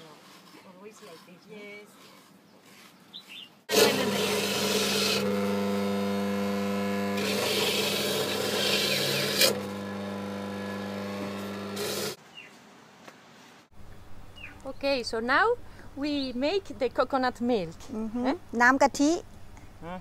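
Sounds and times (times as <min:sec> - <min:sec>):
coconut rasping scrape: 0:00.0 - 0:12.2
grater motor hum: 0:03.7 - 0:12.2.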